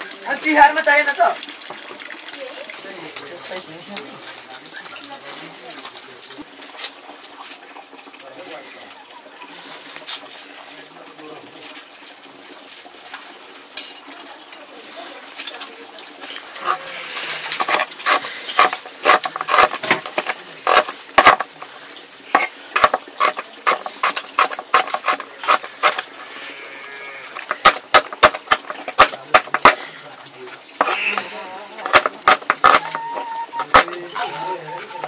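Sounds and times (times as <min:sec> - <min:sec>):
sharp knocks and clatter: 0:17.6 - 0:21.6, 0:22.4 - 0:26.0, 0:27.4 - 0:29.8.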